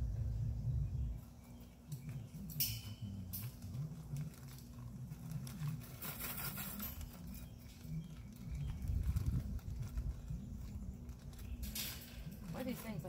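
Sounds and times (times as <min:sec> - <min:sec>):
crinkling rasp: 0:03.1 - 0:13.0.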